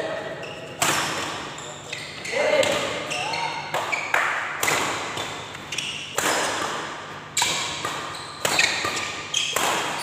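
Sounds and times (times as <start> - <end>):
rackets hitting shuttlecock: 3.6 - 10.0.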